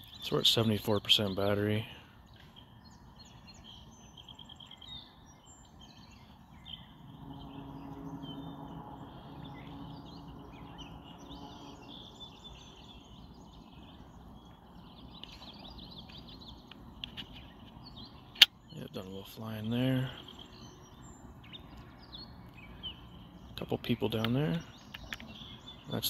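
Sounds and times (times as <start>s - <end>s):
birds chirping and singing: 0.0s - 26.0s
faint low hum: 1.9s - 17.6s.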